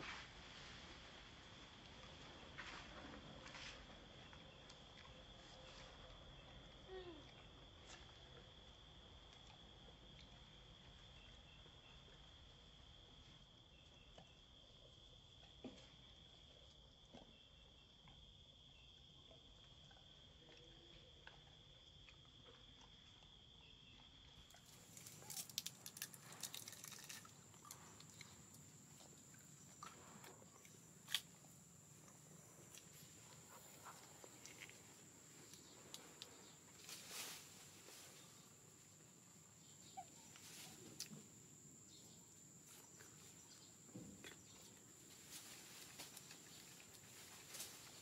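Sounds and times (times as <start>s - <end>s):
insect trill: 16.8s - 48.0s.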